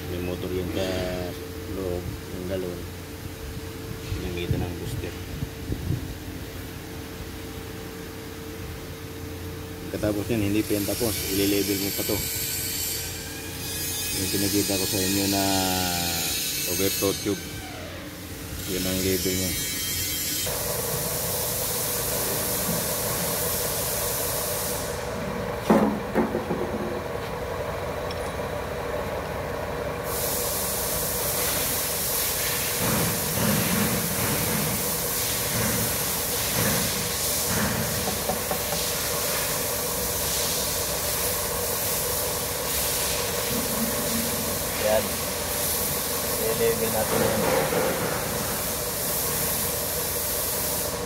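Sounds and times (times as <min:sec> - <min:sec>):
constant hiss: 0:00.0 - 0:13.6, 0:29.8 - 0:51.0
mechanical hum: 0:00.0 - 0:51.0.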